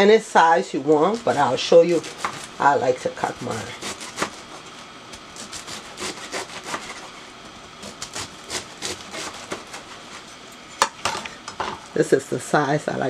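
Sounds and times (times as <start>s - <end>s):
knife slicing cabbage: 1.0s - 2.6s, 3.7s - 4.8s, 5.4s - 10.3s.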